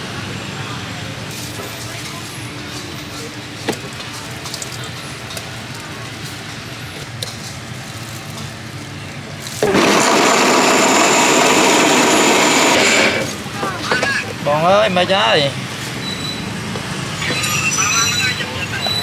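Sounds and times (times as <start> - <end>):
electric blender running: 9.6 - 13.4.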